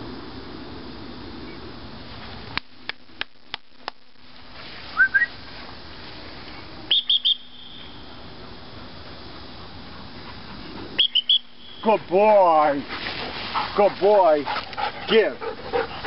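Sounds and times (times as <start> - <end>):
high whistled notes: 5.0 - 5.3, 6.9 - 7.9, 11.0 - 11.9.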